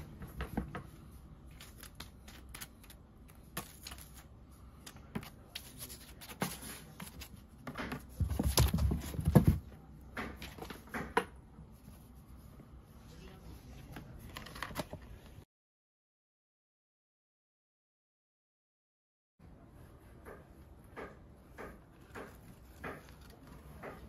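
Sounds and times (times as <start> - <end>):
kitten pawing at cardboard box: 5.0 - 9.7.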